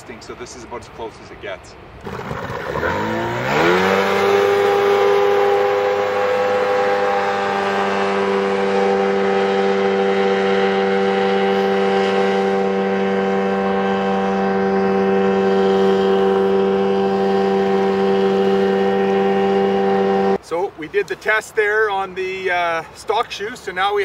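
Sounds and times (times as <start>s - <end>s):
outboard engine droning: 2.0s - 20.7s.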